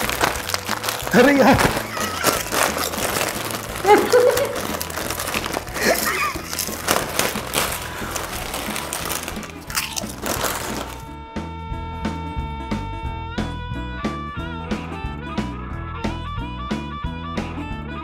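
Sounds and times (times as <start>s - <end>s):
chips crunching: 0.0s - 11.0s
foil packets crinkling: 0.0s - 11.0s.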